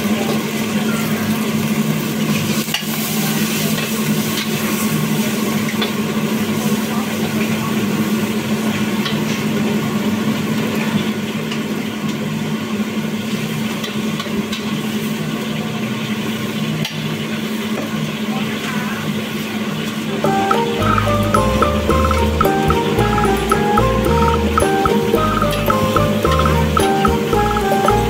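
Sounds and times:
food sizzling in a wok: 0.0s - 20.4s.

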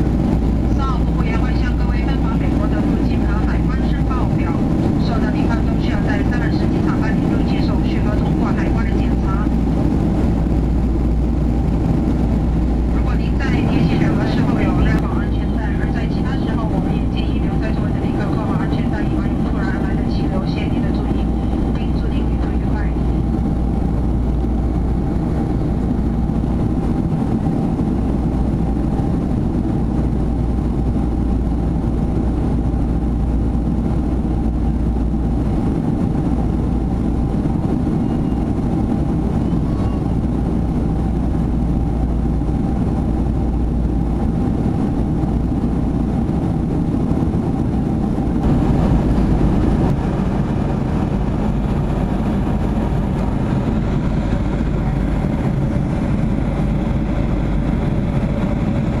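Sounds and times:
faint steady whine: 0.0s - 59.0s
jet engine rush and hum: 0.0s - 59.0s.

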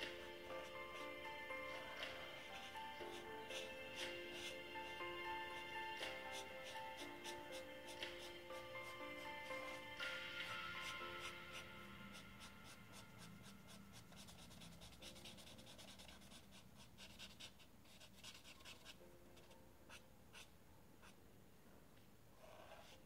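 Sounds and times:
marker scratching on paper: 11.2s - 21.2s.

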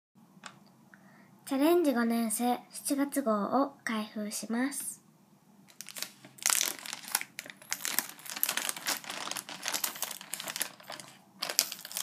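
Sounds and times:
plastic bag crinkling: 5.7s - 12.0s
scissors cutting plastic: 5.7s - 12.0s.

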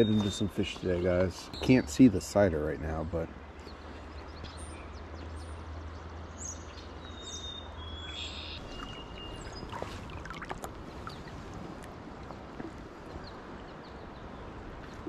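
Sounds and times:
flowing river water: 0.0s - 15.0s.

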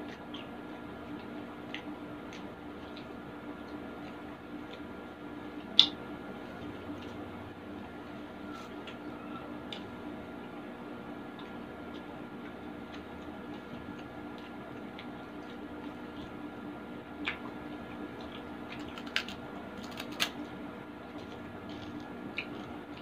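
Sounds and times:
fingers squishing food: 8.5s - 23.0s
crunchy food being bitten: 17.1s - 23.0s.

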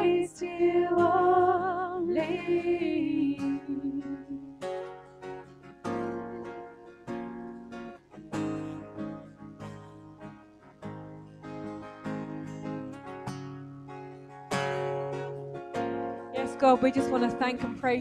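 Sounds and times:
acoustic guitar strummed softly: 0.0s - 18.0s.

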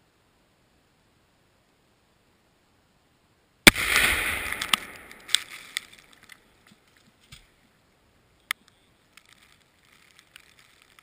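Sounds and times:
explosive target bang: 3.7s - 5.4s
debris ticks and thud: 9.1s - 11.0s.

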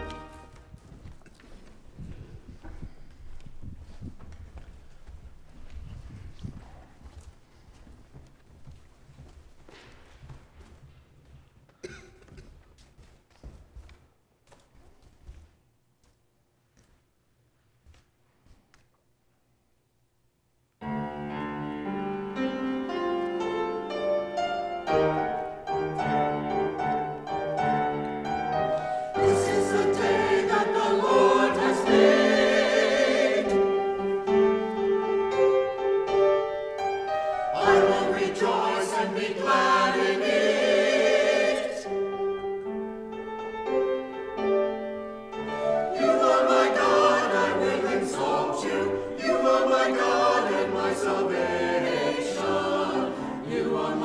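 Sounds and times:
piano accompaniment: 0.0s - 0.8s, 20.8s - 54.0s
choir singing: 24.9s - 35.4s, 37.3s - 42.4s, 45.4s - 54.0s.

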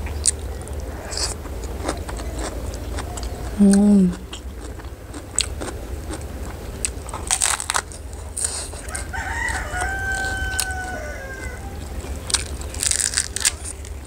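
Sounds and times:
crunchy chewing: 0.0s - 14.0s
rooster crowing: 8.8s - 12.3s.

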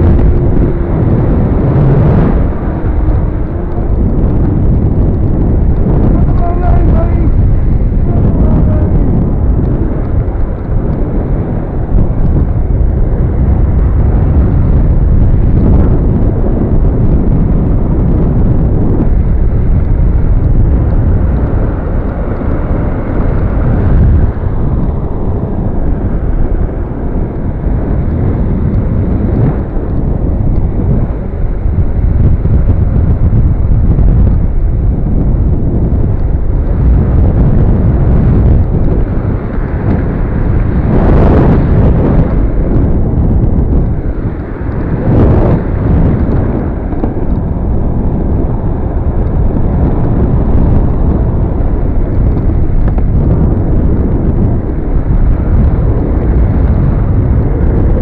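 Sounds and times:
skateboard wheels rolling on pavement: 0.0s - 58.0s
wind buffeting microphone: 0.0s - 58.0s.

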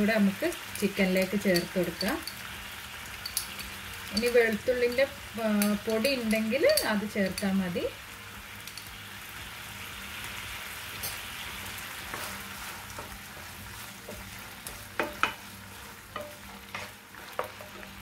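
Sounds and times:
chicken sizzling in frying pan: 0.0s - 18.0s
spatula knocking against pan: 14.9s - 15.4s.

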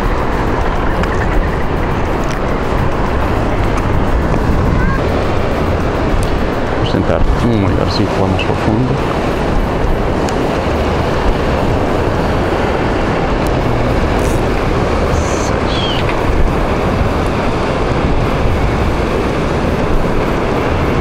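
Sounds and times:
sea surf: 0.0s - 21.0s
wind on the microphone: 0.0s - 21.0s
high falling chirp: 15.1s - 16.1s.

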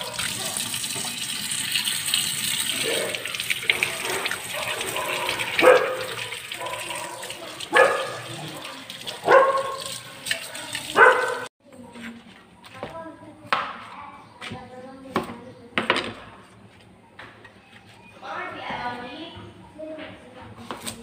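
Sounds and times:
hands rinsing vegetable: 0.0s - 11.5s
tap water running into sink: 0.0s - 11.5s.

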